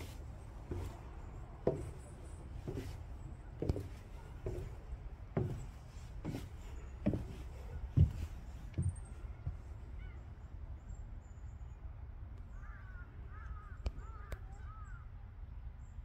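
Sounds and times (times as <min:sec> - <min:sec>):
footsteps walking: 0:00.0 - 0:09.7.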